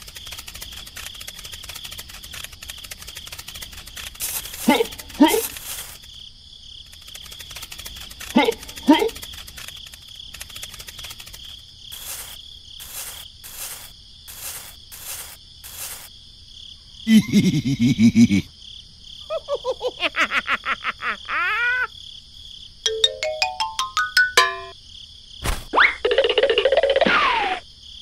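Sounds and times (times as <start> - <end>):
insect-like chirring: 0.0 - 16.2
short hissing pulses: 4.0 - 6.1, 11.9 - 16.1
tones stepping upward: 22.9 - 24.7.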